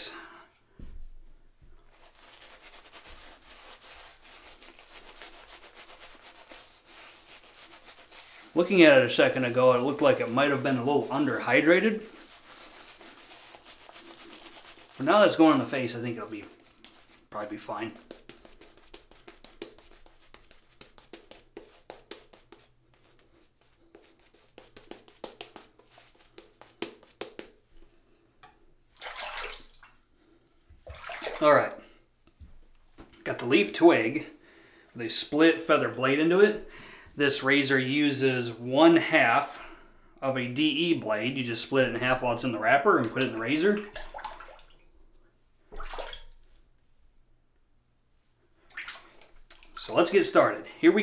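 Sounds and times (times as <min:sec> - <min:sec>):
shaving brush rubbing on stubble: 0:01.9 - 0:27.7.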